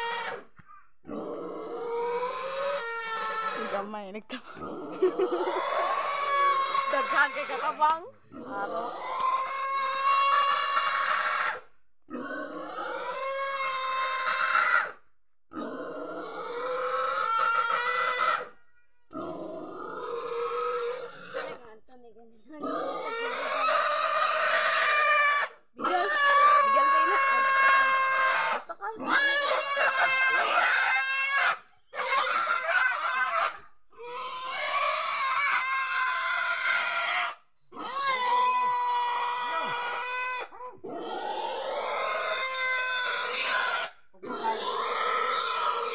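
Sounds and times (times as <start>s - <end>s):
pig squealing: 0.0s - 21.7s, 22.6s - 45.9s.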